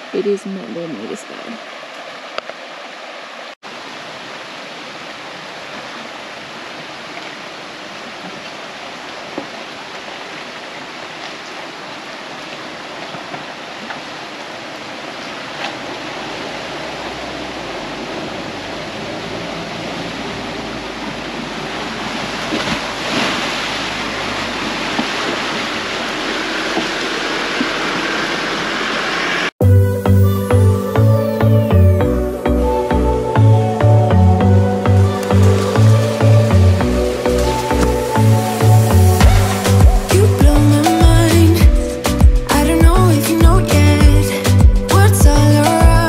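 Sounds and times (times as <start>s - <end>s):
creek water rushing: 0.0s - 46.0s
low rumble: 31.9s - 42.3s.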